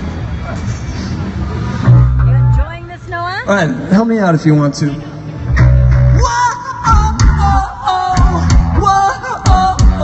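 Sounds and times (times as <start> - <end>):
live rock band playing: 4.9 - 10.0
person singing: 6.1 - 10.0.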